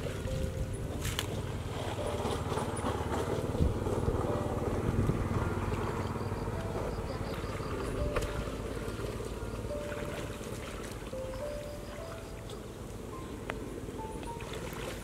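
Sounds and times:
steady low rumble: 0.0 - 11.6
water sloshing and splashing: 0.0 - 15.0.

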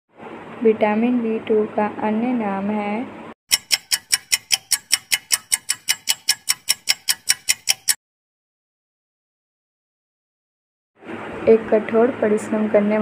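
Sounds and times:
fast clock ticking: 3.5 - 8.0.

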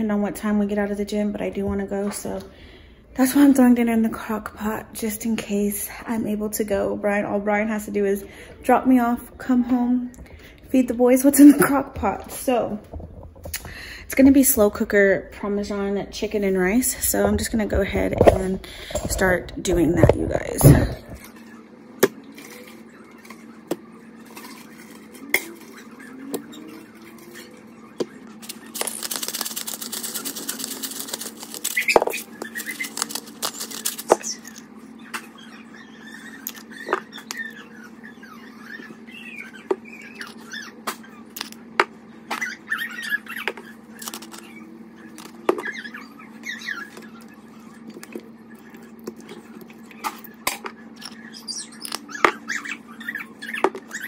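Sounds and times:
steady low hum: 0.0 - 54.0
small squeaks: 24.2 - 41.6, 42.3 - 54.0.

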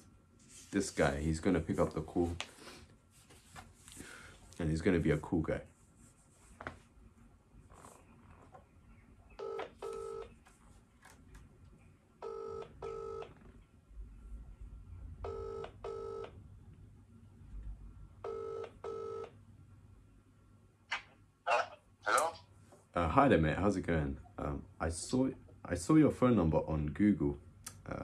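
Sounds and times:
telephone ringback tone: 9.4 - 10.3, 12.2 - 13.3, 15.2 - 16.3, 18.2 - 19.3.

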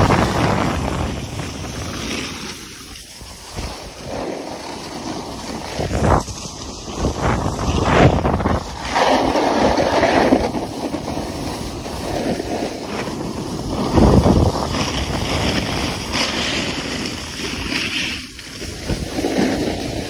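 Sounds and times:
snowboard scraping over snow: 0.0 - 20.0
wind on microphone: 0.0 - 20.0.

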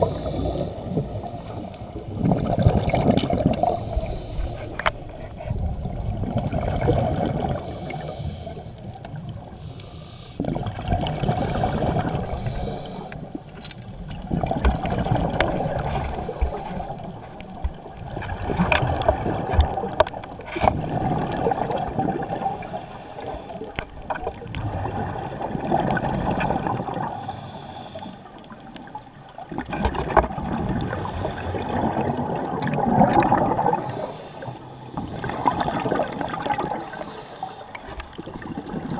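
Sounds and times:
scuba regulator breathing: 0.0 - 2.2, 3.4 - 5.5, 7.4 - 10.7, 11.4 - 13.5, 15.6 - 18.0, 21.4 - 23.9, 27.0 - 28.6, 30.8 - 32.2, 33.7 - 35.0, 36.6 - 38.2
exhaled bubbles underwater: 0.0 - 9.8, 10.4 - 38.9.

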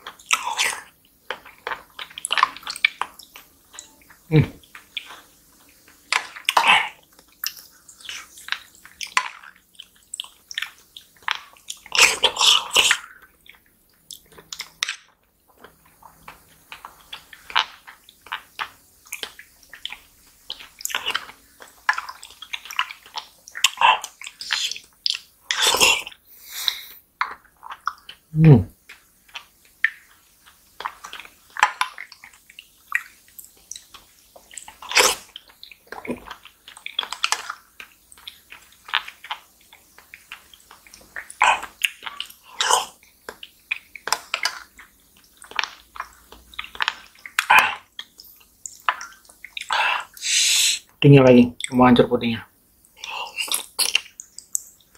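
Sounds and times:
wet slurps and squishes: 0.0 - 3.5, 6.1 - 14.8, 15.5 - 50.9, 52.9 - 54.9.

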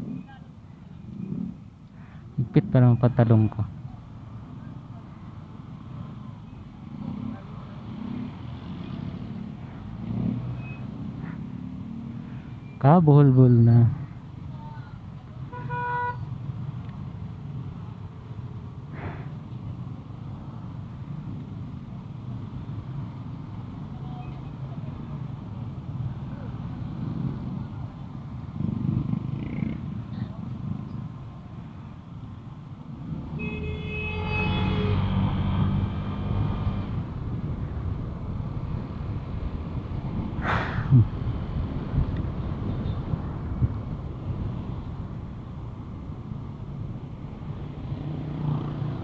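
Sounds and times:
scooter engine and road rumble: 0.0 - 49.0
traffic noise: 0.0 - 49.0
brief hiss: 18.9 - 19.4, 40.4 - 41.0.

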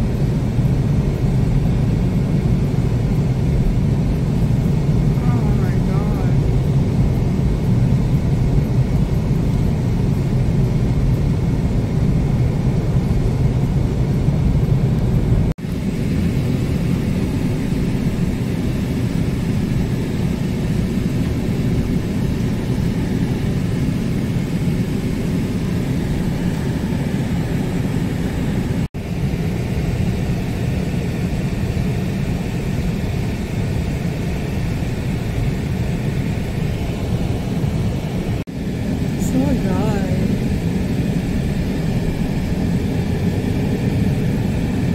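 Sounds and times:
car driving on highway: 0.0 - 28.9.

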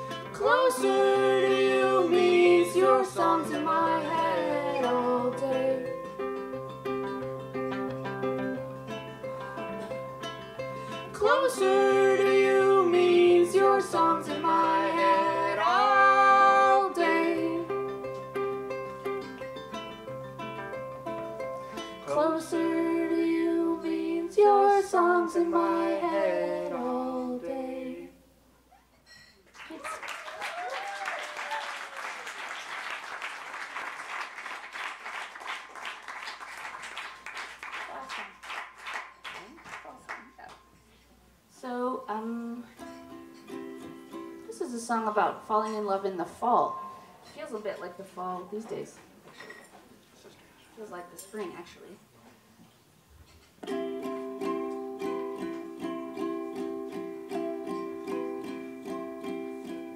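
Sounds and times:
plucked string instrument: 0.0 - 28.0, 42.6 - 48.1, 53.6 - 59.9
audience applauding: 29.5 - 40.3.

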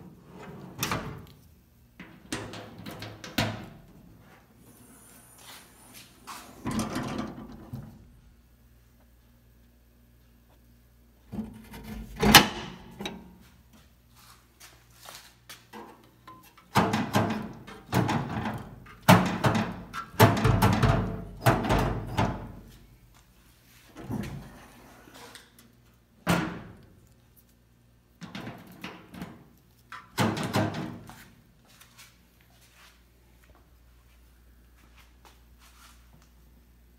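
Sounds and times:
metal drawers sliding and clunking: 0.1 - 1.3, 5.9 - 8.1, 11.3 - 13.3, 16.3 - 22.7, 23.9 - 25.3.

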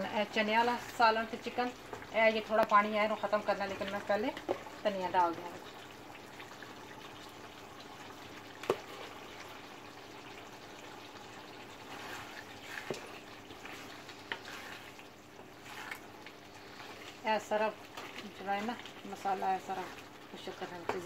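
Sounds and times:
curry bubbling in a pan: 0.0 - 21.0
wooden spatula stirring: 11.2 - 21.0.

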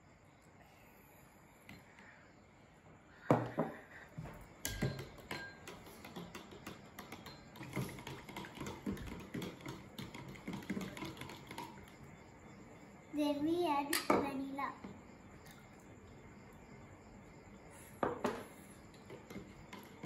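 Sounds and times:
fork stirring batter in plastic jug: 4.7 - 12.2, 18.8 - 20.0.

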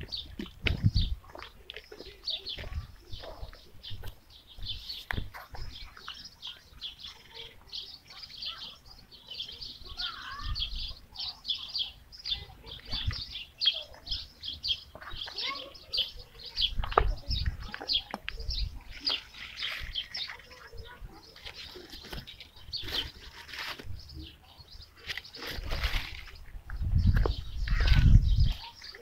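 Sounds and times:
small birds chirping: 0.0 - 29.0.

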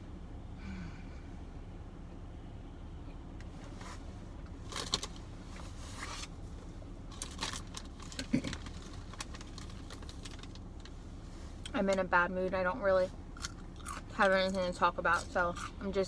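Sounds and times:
low background rumble: 0.0 - 16.0
food wrapping rustling: 7.1 - 11.0.

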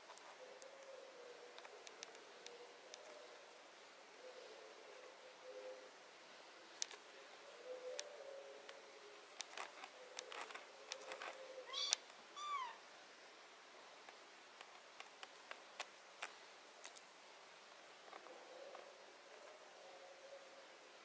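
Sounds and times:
light clicks and rustles: 0.0 - 3.5, 6.7 - 7.1, 7.9 - 12.2, 14.0 - 19.6
kitten meowing: 11.7 - 12.8.

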